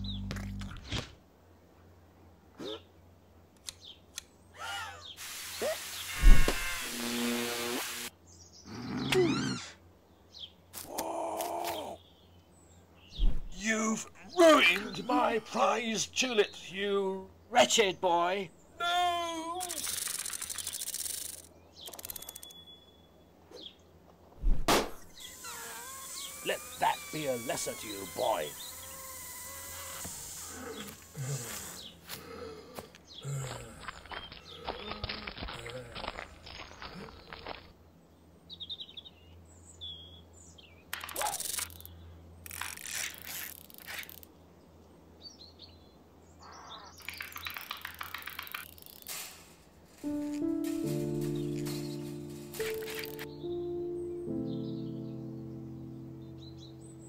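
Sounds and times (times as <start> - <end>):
bird chirps: 0.0 - 0.6, 19.6 - 23.8, 45.2 - 49.0, 50.1 - 57.0
loud burst of noise: 5.2 - 8.1
trowel digging into soil: 49.0 - 53.3
music with held notes: 50.0 - 57.0.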